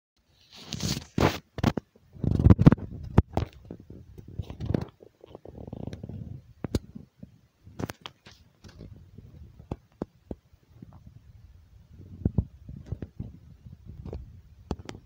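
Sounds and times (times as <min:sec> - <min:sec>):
scraping and rustling: 0:00.3 - 0:07.1.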